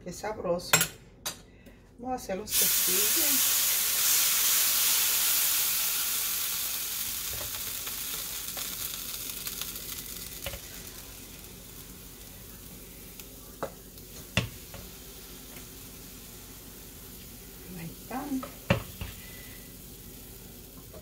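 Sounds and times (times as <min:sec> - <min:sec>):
griddle sizzling and hissing: 0:02.5 - 0:21.0.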